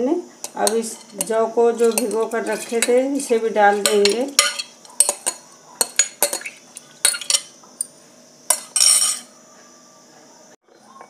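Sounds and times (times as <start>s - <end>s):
spoon clinking on glass bowl: 0.4s - 3.0s, 3.7s - 7.9s, 8.5s - 9.3s.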